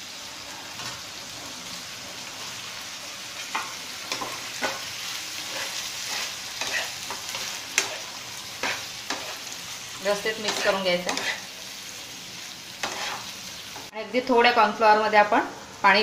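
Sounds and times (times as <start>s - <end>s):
sauce sizzling in a frying pan: 0.0s - 16.0s
spoon scraping and clicking on pan: 5.5s - 9.4s, 10.5s - 11.4s, 12.8s - 13.2s.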